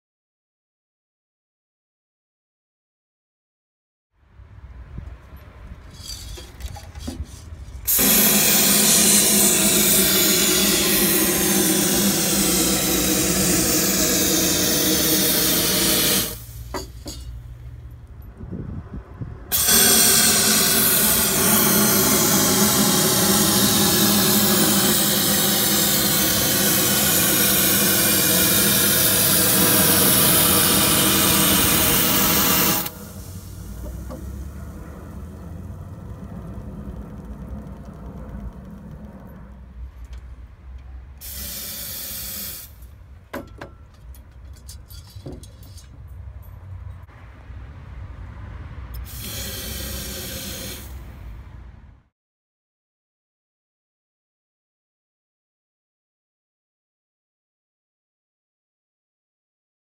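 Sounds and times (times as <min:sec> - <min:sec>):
aerosol spray hissing: 0:07.9 - 0:16.6, 0:19.5 - 0:34.5, 0:41.2 - 0:42.8, 0:49.0 - 0:50.9.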